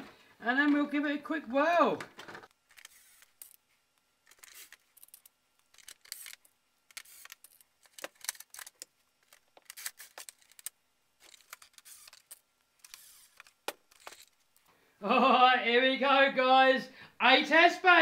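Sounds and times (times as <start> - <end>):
plastic clicking and rustling: 4.3 - 14.4.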